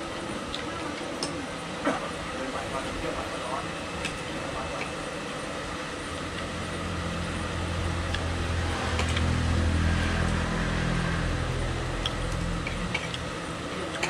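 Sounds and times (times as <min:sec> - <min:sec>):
vehicle engine hum: 0:05.8 - 0:13.8.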